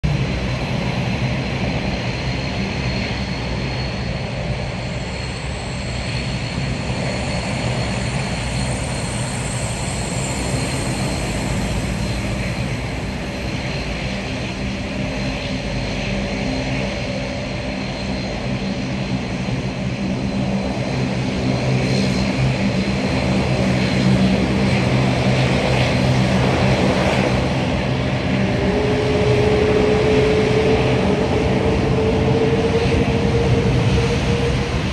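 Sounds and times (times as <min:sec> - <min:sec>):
jet engines whining: 0:00.1 - 0:34.9.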